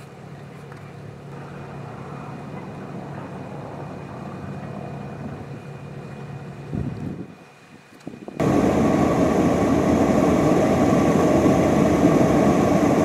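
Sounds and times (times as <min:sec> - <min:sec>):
car engine idling: 0:08.4 - 0:13.0.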